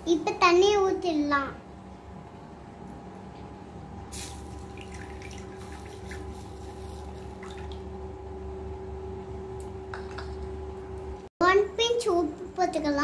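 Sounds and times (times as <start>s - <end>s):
water trickling into clay pot: 4.4s - 7.9s.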